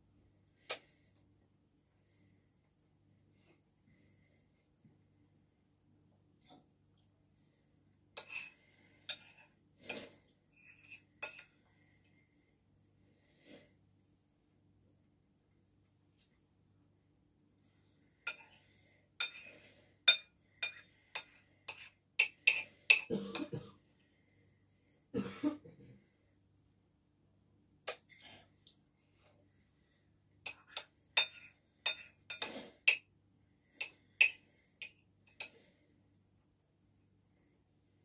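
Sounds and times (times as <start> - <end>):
metal utensil scraping ceramic bowl: 8.2 - 11.6, 18.2 - 19.5, 20.1 - 23.1, 30.4 - 33.1.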